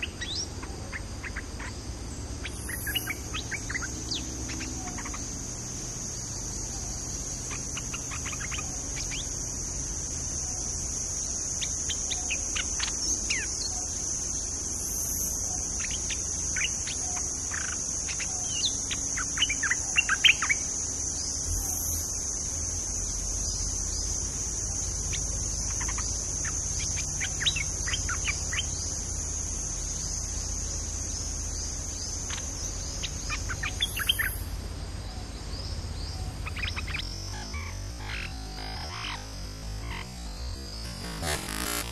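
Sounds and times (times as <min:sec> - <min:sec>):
high-pitched insect drone: 0:00.0 - 0:41.9
bulbuls chirping: 0:02.4 - 0:09.3, 0:35.2 - 0:41.9.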